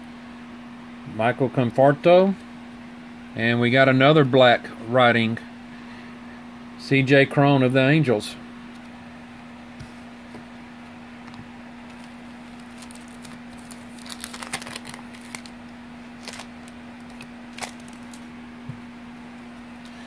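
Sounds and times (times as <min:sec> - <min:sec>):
cards rustling and clicking: 0:11.3 - 0:15.6, 0:16.2 - 0:18.3.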